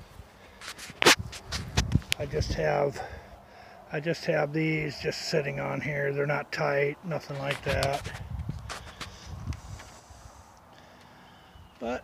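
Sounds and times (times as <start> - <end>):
footsteps on gravel and grass: 0.0 - 2.7, 7.2 - 10.5.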